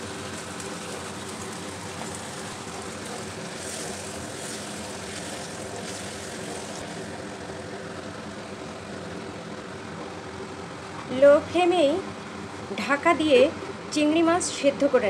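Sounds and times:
spatula stirring: 0.0s - 6.9s
prawns simmering and sizzling: 0.0s - 10.9s.

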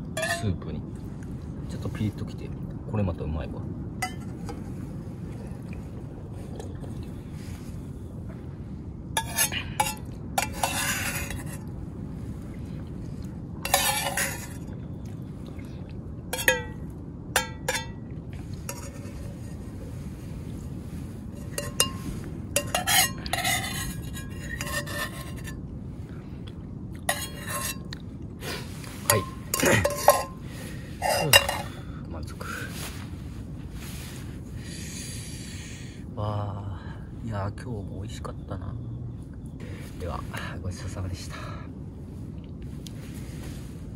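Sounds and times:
low background noise: 0.0s - 43.9s
metal pot clinking: 0.1s - 0.6s, 4.0s - 4.6s, 9.2s - 11.6s, 13.6s - 14.7s, 16.4s - 16.8s, 17.4s - 18.0s, 18.6s - 19.5s, 21.4s - 25.6s, 27.1s - 27.9s, 29.0s - 30.4s, 31.0s - 31.8s.

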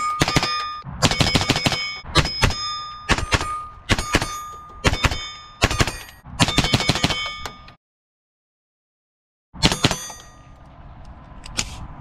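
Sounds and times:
steel targets ringing: 0.0s - 7.8s, 9.6s - 10.6s.

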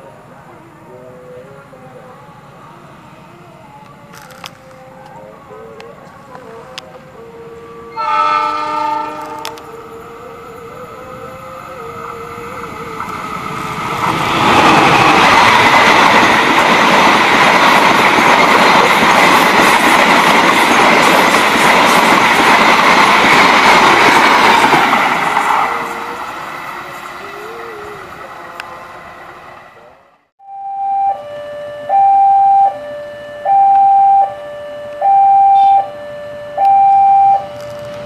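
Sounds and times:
train wheel rumble: 0.0s - 30.1s, 37.4s - 38.0s
train horn chord: 3.8s - 12.6s, 30.4s - 37.7s.

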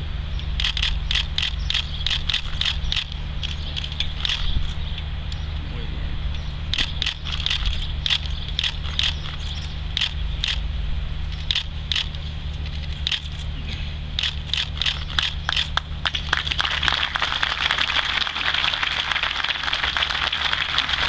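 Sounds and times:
low hum: 0.0s - 21.0s
sharp clicks: 0.6s - 5.4s, 6.7s - 10.6s, 11.3s - 13.5s, 14.2s - 16.6s.

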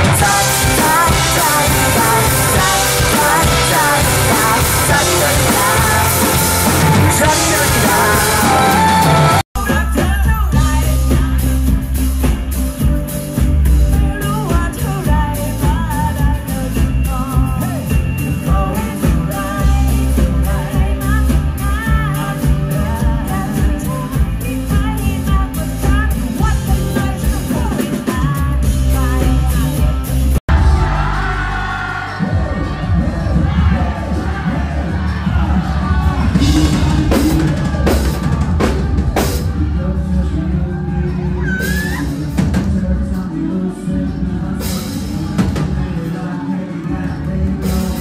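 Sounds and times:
woman singing: 0.0s - 11.9s, 13.8s - 30.1s
pop-rock band playing: 0.0s - 48.0s.

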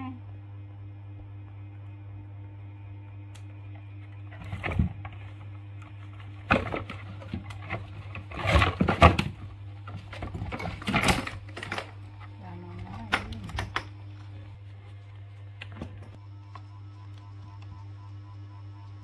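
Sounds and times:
steady low hum: 0.0s - 19.0s
monkeys scuffling in plastic toy: 6.0s - 13.6s.

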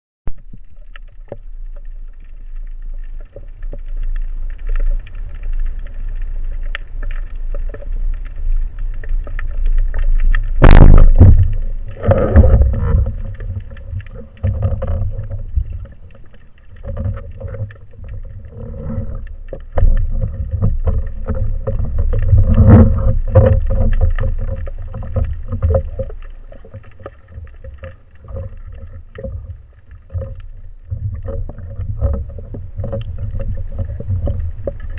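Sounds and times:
underwater rumble of water: 0.3s - 34.9s
knocks and sloshes: 7.0s - 34.9s.

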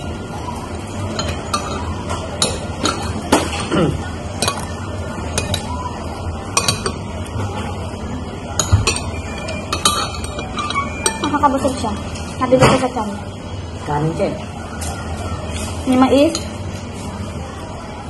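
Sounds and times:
spoons clinking against ceramic bowls: 0.8s - 7.2s, 8.5s - 12.4s, 15.6s - 16.8s.

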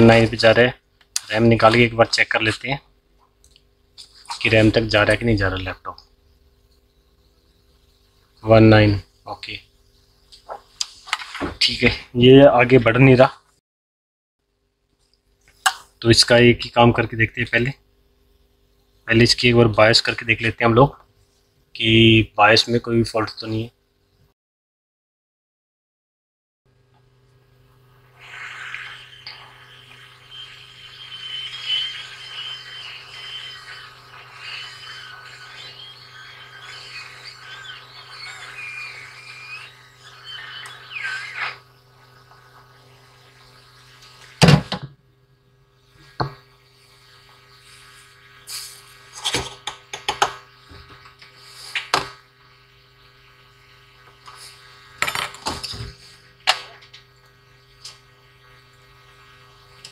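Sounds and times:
steady low hum: 26.8s - 59.9s
hot air gun hissing: 28.0s - 44.7s, 45.8s - 49.3s, 50.4s - 55.2s.

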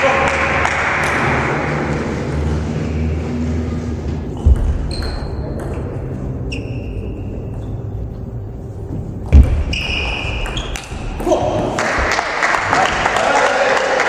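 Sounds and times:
table tennis ball pinging: 4.4s - 6.2s.

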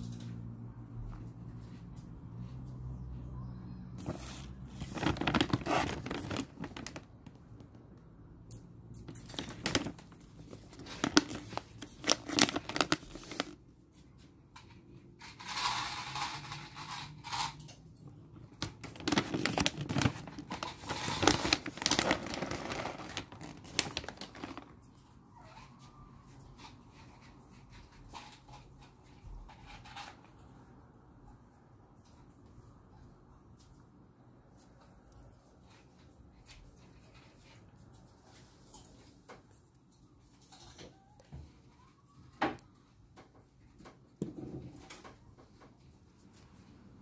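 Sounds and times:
paper bag crinkling: 4.0s - 7.8s, 9.0s - 13.6s, 18.5s - 24.8s.

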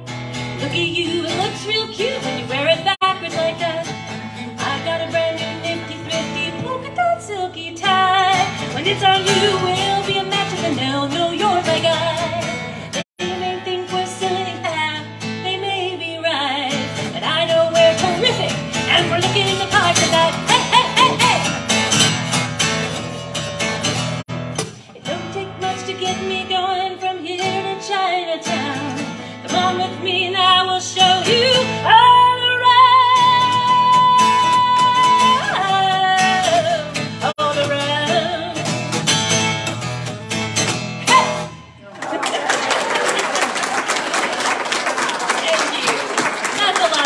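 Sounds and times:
acoustic guitar strumming: 0.0s - 41.8s
woman singing: 0.6s - 21.6s, 24.8s - 38.8s.

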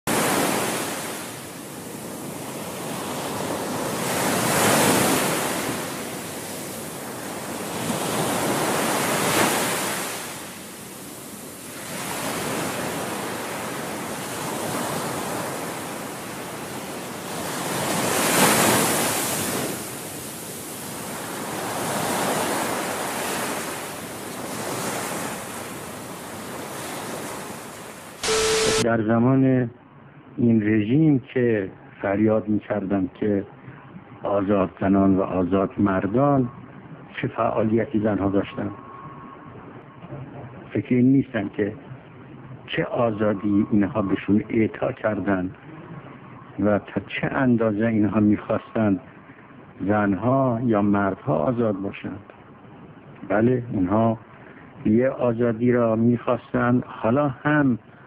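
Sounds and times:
sea waves washing in: 0.1s - 28.8s.

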